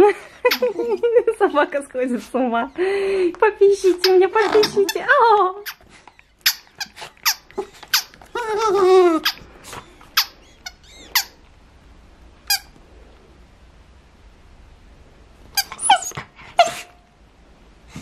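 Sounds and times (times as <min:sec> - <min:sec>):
rubber squeaky ball squeaking: 0:03.9 - 0:11.4, 0:15.6 - 0:16.2.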